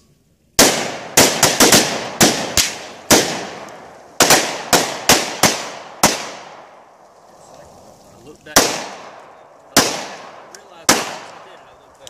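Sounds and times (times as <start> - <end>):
gunshots with echo: 0.6 - 6.8, 8.5 - 11.5.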